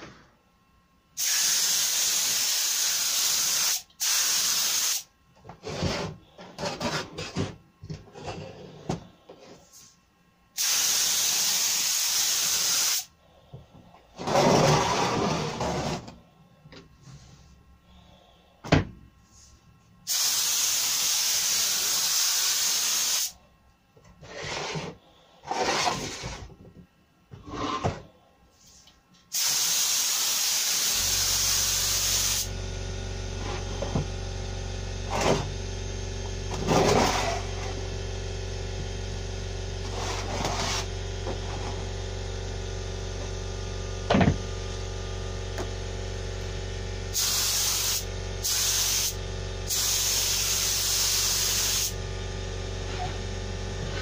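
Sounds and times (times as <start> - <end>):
spray gun hissing: 1.2 - 5.1, 10.6 - 13.1, 20.1 - 23.3, 29.3 - 32.5, 47.1 - 52.0.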